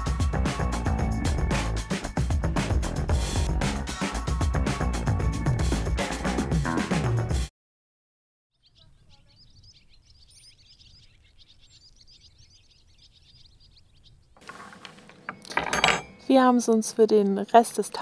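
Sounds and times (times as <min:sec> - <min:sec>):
small birds chirping: 0:08.5 - 0:15.5.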